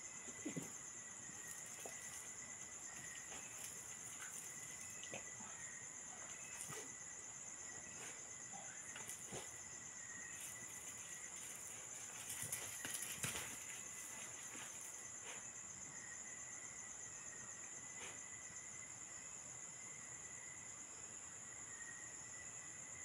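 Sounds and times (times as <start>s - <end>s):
crickets trilling: 0.0s - 23.0s
faint clicks and scuffs: 10.4s - 15.4s.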